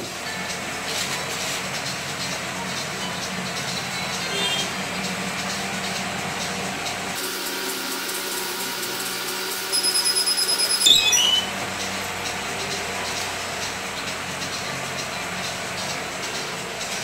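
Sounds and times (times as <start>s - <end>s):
timer alarm beeping rapidly: 9.7s - 12.0s
press opening squeak and clunk: 9.8s - 11.6s.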